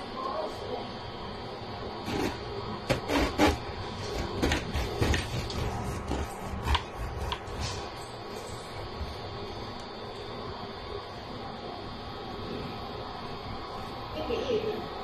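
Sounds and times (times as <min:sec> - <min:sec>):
knife sawing bread crust: 0:02.1 - 0:07.6.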